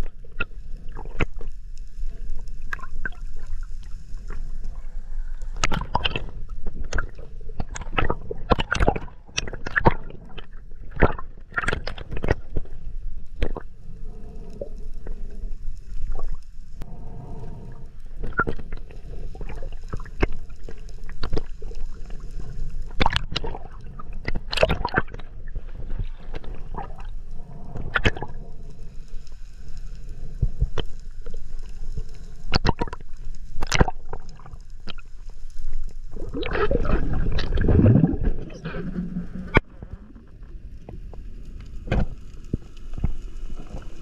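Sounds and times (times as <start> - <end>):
muffled underwater rush: 0.0 - 44.0
underwater clicks and pops: 5.6 - 12.7, 13.4 - 13.7, 18.2 - 21.8, 22.9 - 23.6, 24.2 - 25.3, 32.5 - 33.0, 33.6 - 35.0, 36.2 - 40.0, 41.8 - 42.2.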